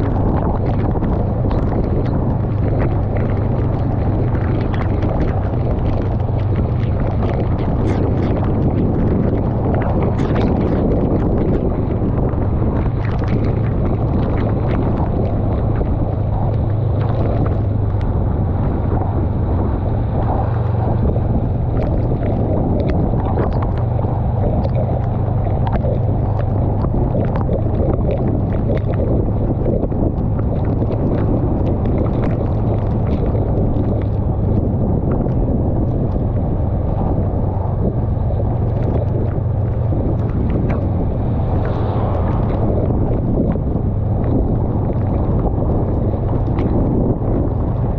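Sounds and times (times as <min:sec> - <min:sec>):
rain drops ticking on camera: 0:00.0 - 0:47.9
wind noise on microphone: 0:00.0 - 0:47.9
motorcycle engine humming: 0:11.4 - 0:31.8, 0:32.4 - 0:47.9.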